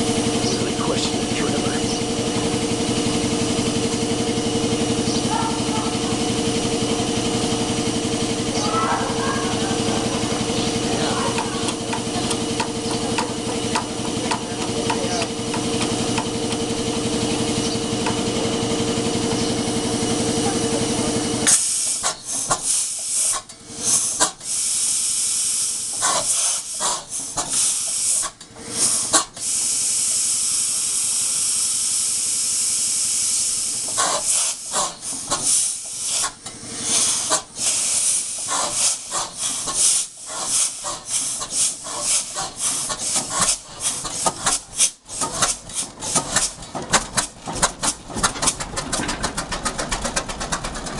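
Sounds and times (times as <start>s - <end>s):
diesel engine running: 0.0s - 50.9s
compressed air hissing: 21.5s - 46.6s.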